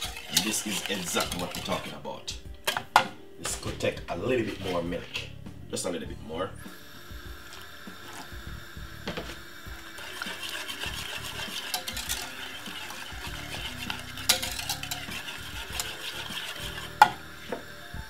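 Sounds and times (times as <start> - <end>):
whisk scraping metal pan: 0.0 - 5.3, 9.7 - 17.8.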